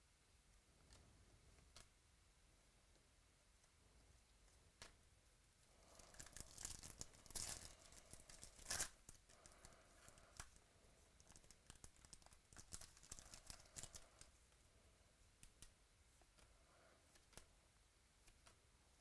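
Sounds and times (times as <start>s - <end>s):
foil wrapper tearing and crinkling: 6.1s - 9.2s.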